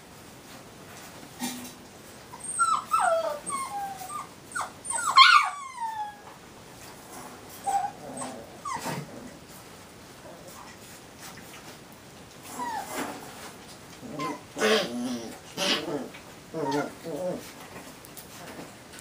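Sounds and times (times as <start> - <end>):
puppies squealing and whimpering: 2.4 - 6.2, 7.6 - 8.9, 12.5 - 13.0, 14.1 - 17.4.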